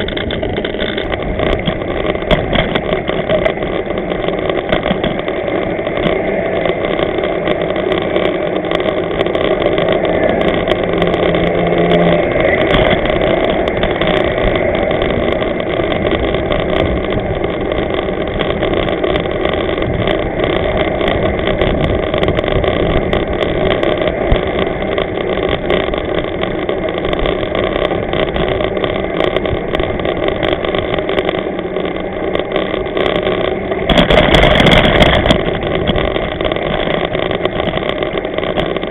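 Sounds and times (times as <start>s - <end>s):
bike tyres on loose stones: 0.0s - 38.9s.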